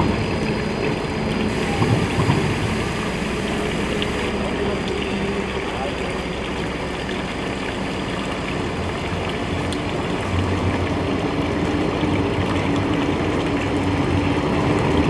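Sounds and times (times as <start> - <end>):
trams humming past: 0.0 - 7.6
water running into fountain: 0.0 - 15.0.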